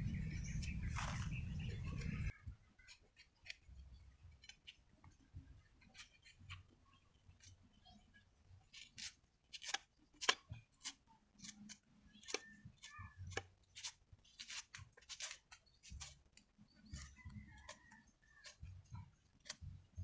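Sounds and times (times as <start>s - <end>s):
knife scraping cuts: 8.7s - 16.2s.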